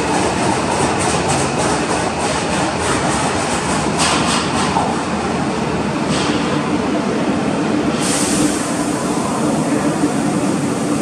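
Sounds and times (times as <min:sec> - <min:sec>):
subway train rumble: 0:00.0 - 0:11.0
hiss: 0:07.9 - 0:11.0.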